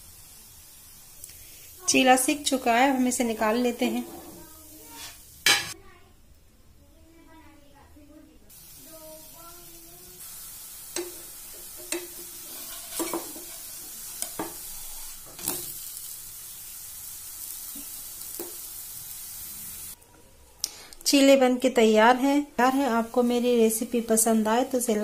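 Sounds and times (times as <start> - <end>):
batter sizzling in oil: 0.0 - 5.8, 8.5 - 20.0, 21.8 - 25.0
metal spatula scraping pan: 3.7 - 5.8, 11.8 - 15.7.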